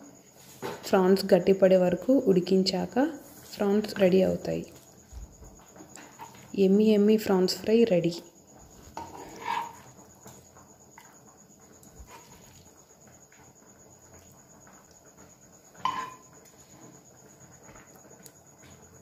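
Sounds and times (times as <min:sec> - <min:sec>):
spoon scraping frying pan: 0:06.0 - 0:06.5, 0:08.7 - 0:11.1, 0:11.9 - 0:12.8, 0:15.7 - 0:16.4.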